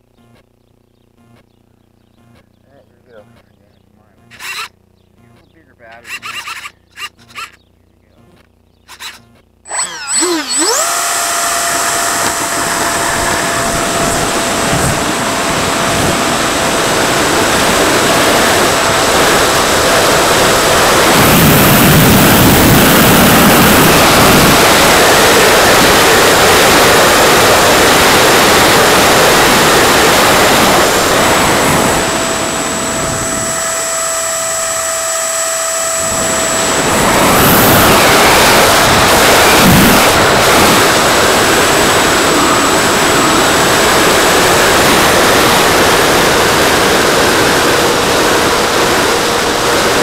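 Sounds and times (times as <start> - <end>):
electric motor whine: 4.0 - 50.0
wind rush: 11.5 - 33.8, 35.9 - 50.0.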